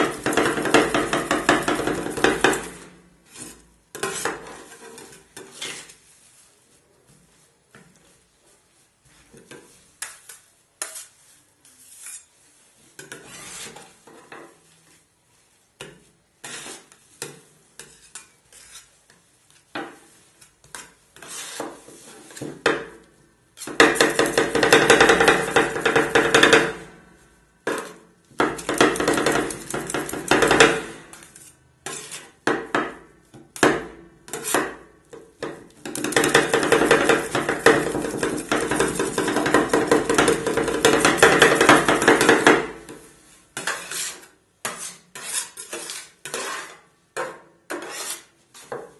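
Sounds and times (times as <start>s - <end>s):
steel scrapers chopping on metal pan: 0.0s - 5.9s, 20.6s - 23.0s, 23.6s - 27.0s, 27.7s - 48.9s.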